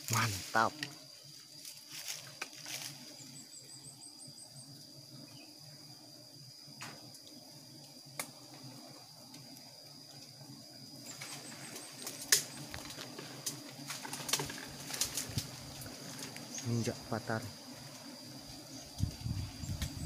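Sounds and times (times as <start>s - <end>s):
twigs and leaves crackling: 1.5s - 3.2s, 11.1s - 16.8s.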